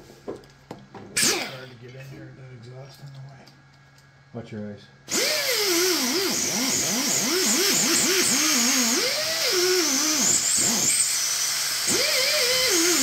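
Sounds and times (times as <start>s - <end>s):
pneumatic tool whining: 1.2s - 1.7s, 5.1s - 13.0s.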